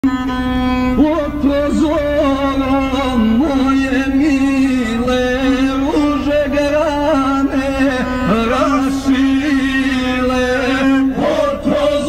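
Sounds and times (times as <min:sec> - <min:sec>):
ornamented melody: 0:00.0 - 0:11.4
low steady rumble: 0:00.0 - 0:12.0.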